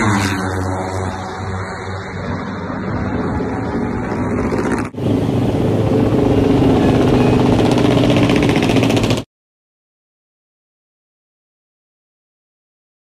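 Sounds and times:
motorcycle engine running loudly: 0.0s - 9.3s.

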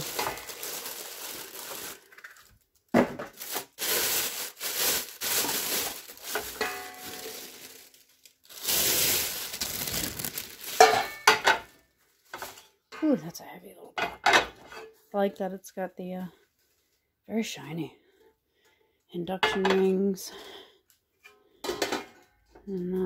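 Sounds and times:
plastic bag crinkling: 0.0s - 12.5s.

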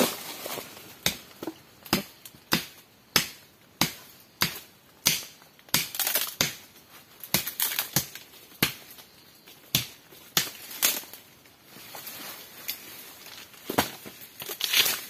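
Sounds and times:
rustling: 0.0s - 1.6s
firewood snapping and cracking: 1.0s - 11.3s, 13.3s - 15.0s.

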